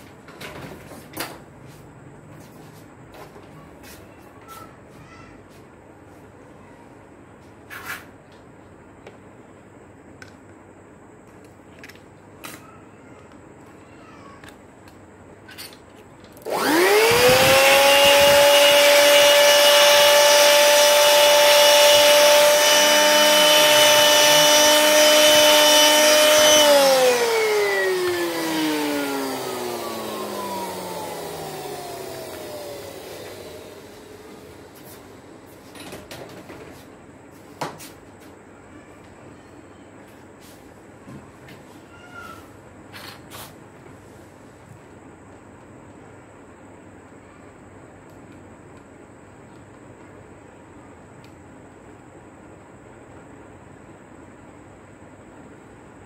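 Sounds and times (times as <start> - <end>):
electric blower motor whine: 16.4 - 35.3.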